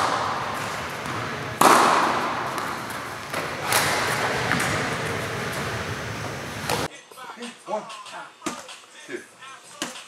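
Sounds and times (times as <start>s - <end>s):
racquet and ball smacks: 0.0s - 6.9s.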